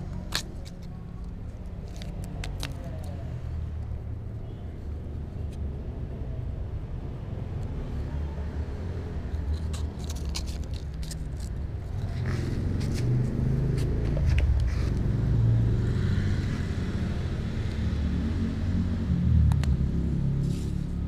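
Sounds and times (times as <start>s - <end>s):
cat rubbing clicks and scrapes: 9.2s - 15.1s.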